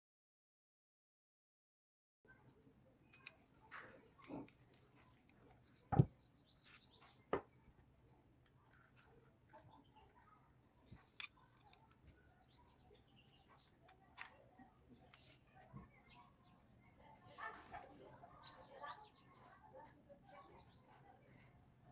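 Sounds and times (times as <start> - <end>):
small metal clicks and taps: 3.0 - 5.6, 10.9 - 12.2.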